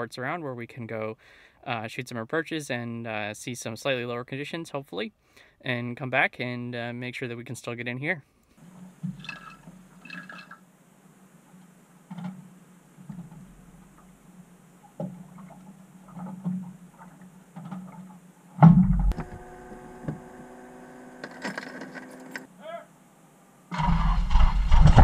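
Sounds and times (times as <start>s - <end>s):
small knocks and rustling: 8.6s - 10.6s, 11.2s - 20.3s
steady multi-tone hum: 8.6s - 25.0s
heavy thump: 18.6s - 19.4s.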